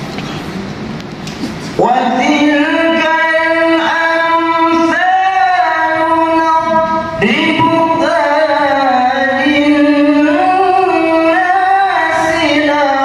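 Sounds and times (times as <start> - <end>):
man chanting melodically: 1.8 - 13.0.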